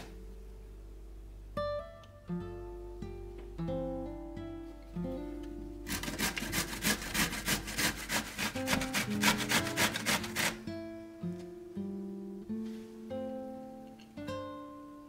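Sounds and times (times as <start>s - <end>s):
acoustic guitar music: 0.0s - 15.0s
vegetable grating on metal grater: 5.9s - 10.6s.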